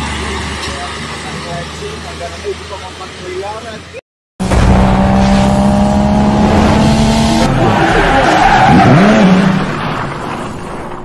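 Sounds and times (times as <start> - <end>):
sports car engine: 4.4 - 9.9
tyres squealing: 7.6 - 9.2.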